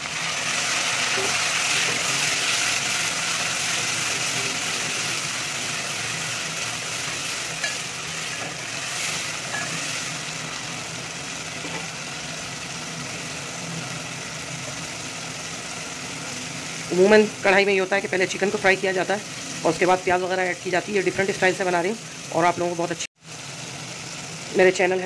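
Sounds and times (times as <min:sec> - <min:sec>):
vegetables sizzling in hot oil: 0:00.0 - 0:25.0
spoon stirring and scraping pot: 0:07.6 - 0:10.0.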